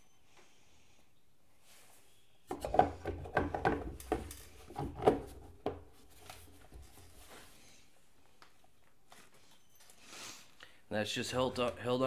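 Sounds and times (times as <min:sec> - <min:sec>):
plastic cover knocking and scraping: 0:02.5 - 0:07.2.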